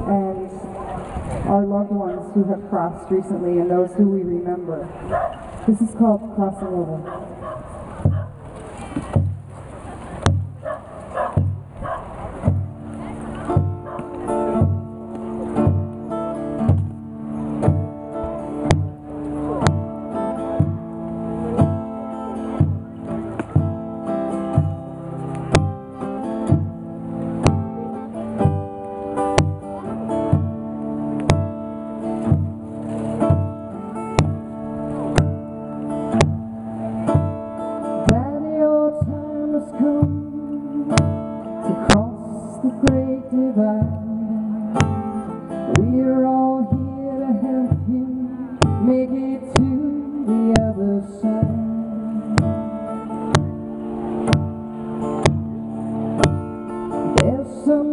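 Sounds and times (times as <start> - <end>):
acoustic guitar playing: 0.0 - 57.9
woman singing: 38.0 - 52.7, 57.2 - 57.9.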